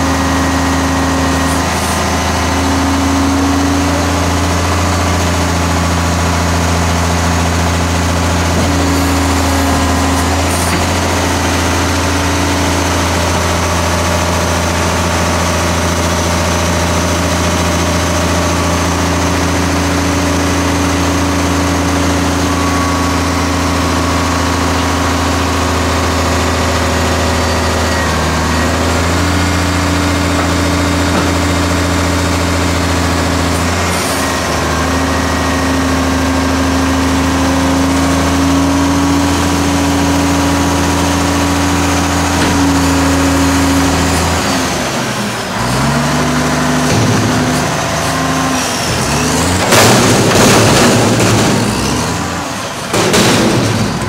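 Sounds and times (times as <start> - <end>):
diesel truck engine idling: 0.0 - 54.0
higher hum: 6.3 - 15.0.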